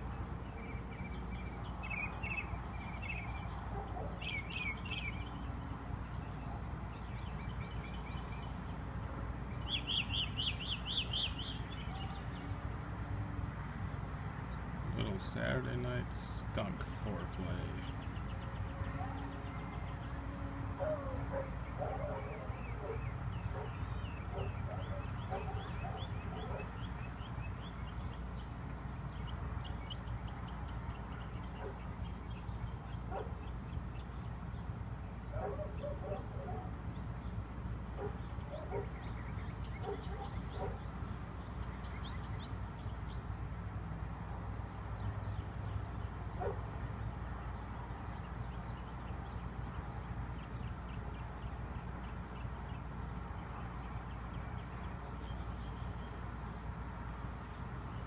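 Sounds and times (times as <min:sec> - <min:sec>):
bark-like animal calls: 0:20.8 - 0:26.8, 0:35.3 - 0:36.8, 0:38.0 - 0:39.0, 0:39.8 - 0:40.8.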